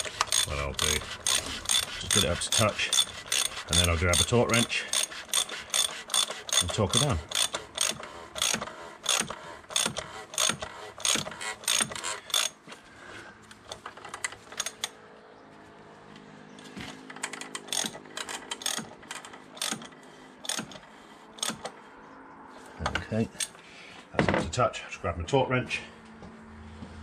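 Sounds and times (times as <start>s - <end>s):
ratchet wrench clicking: 0.0s - 12.6s, 13.7s - 15.0s, 17.1s - 21.8s, 23.4s - 23.6s.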